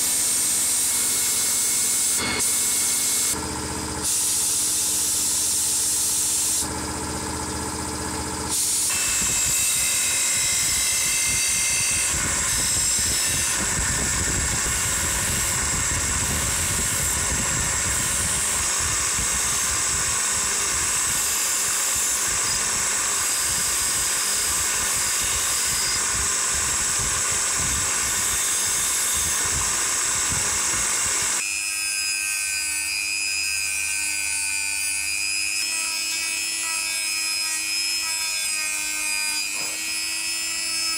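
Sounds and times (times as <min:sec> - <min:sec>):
bench grinder on metal: 0:00.0 - 0:40.9
rotary tool whirring: 0:08.5 - 0:31.4.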